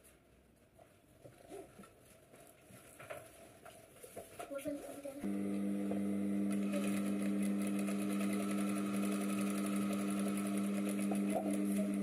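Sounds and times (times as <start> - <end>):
sewing machine motor hum: 5.2 - 12.0.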